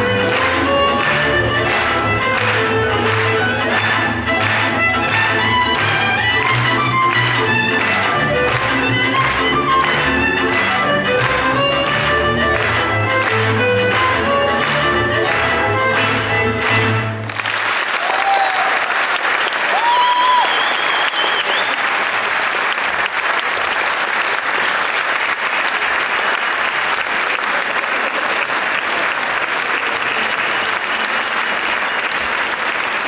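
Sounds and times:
folk string band playing: 0.0 - 17.4
audience applauding: 0.0 - 33.0
high calls from audience: 18.0 - 21.7.

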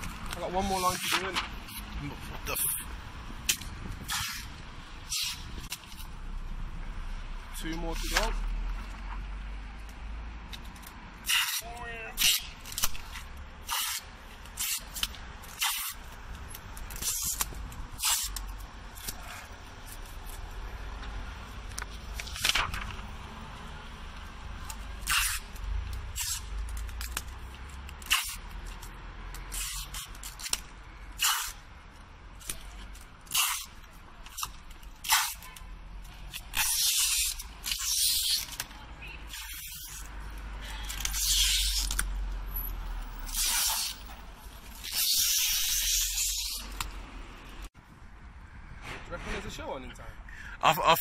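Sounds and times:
paper and tape hissing on glass: 11.2 - 15.0, 16.9 - 20.4, 25.0 - 26.5, 28.0 - 28.5, 29.5 - 30.5, 31.2 - 31.6, 36.5 - 38.6, 39.3 - 40.1, 40.8 - 42.0, 43.2 - 44.1, 44.7 - 46.8.

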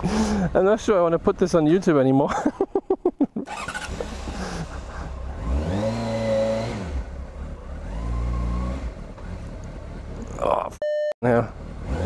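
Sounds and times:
motorcycle engine pulling away: 3.5 - 10.2.

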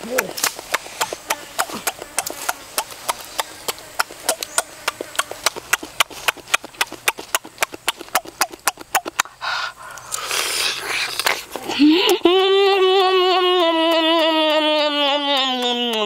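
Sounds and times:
lip-smacking while eating: 0.0 - 16.0.

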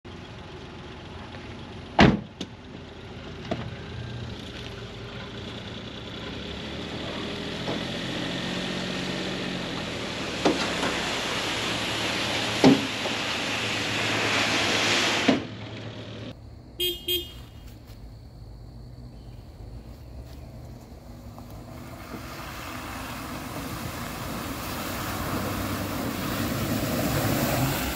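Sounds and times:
van engine running: 0.1 - 27.9
short horn toots: 16.8 - 17.8.

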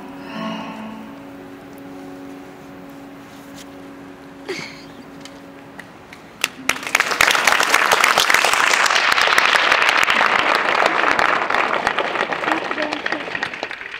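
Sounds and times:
audience applause: 6.4 - 13.9.

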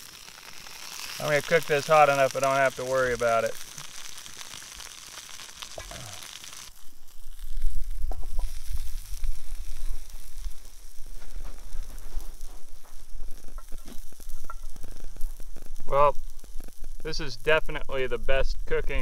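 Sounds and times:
meat sizzling in skillet: 0.0 - 19.0.

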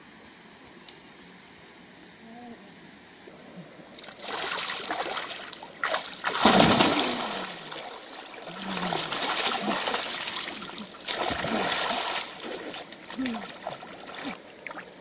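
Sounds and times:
hands splashing river water: 4.0 - 14.9
person wading in water: 4.0 - 15.0.

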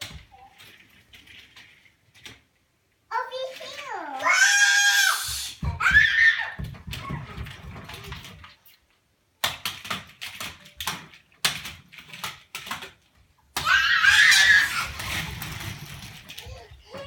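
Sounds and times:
child crying out: 4.2 - 7.2, 13.6 - 15.1
child's footsteps on hardwood floor: 5.2 - 8.3, 15.2 - 17.0.

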